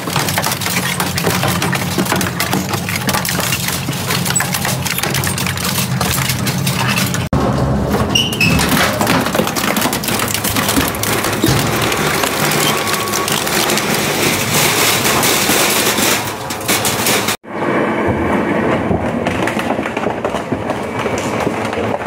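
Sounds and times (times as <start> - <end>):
shredder crunching sheet metal: 0.0 - 17.4.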